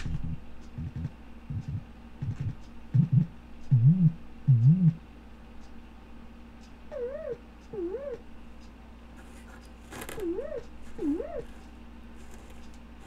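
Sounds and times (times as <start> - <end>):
wobbling synthesizer tones: 0.0 - 5.0, 6.9 - 8.3, 10.2 - 11.6.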